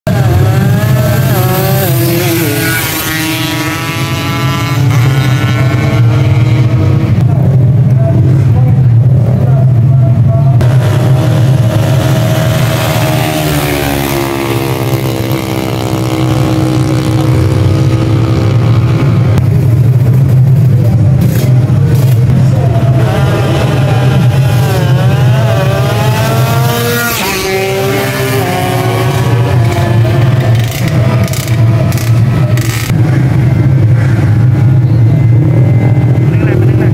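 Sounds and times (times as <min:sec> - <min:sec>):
motorcycle engines revving: 0:00.0 - 0:36.9
low drone: 0:00.1 - 0:36.9.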